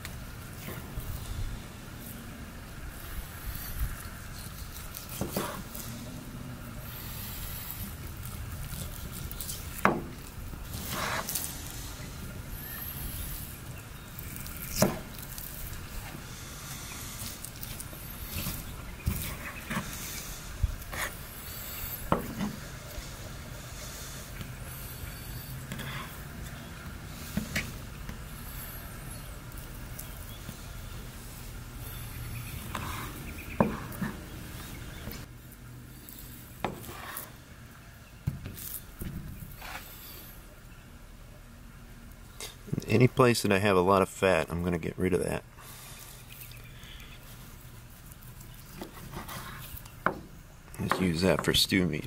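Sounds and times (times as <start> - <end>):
steady low hum: 0.0 - 52.0
knife slicing meat on wooden board: 8.7 - 11.5.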